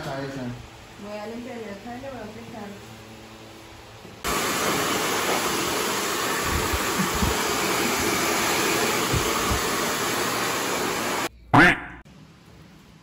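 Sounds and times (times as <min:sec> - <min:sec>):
hair dryer running: 0:04.1 - 0:11.3
air buffeting thumps: 0:06.4 - 0:09.8.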